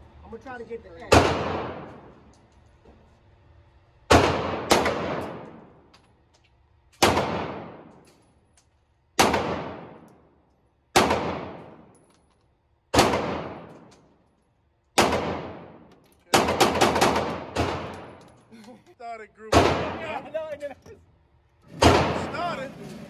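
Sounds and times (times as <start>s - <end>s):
pistol shots echoing: 1.1s - 2.1s, 4.1s - 5.7s, 7.0s - 8.0s, 9.2s - 10.1s, 10.9s - 11.9s, 12.9s - 13.9s, 15.0s - 18.3s, 19.5s - 20.2s, 21.8s - 22.3s.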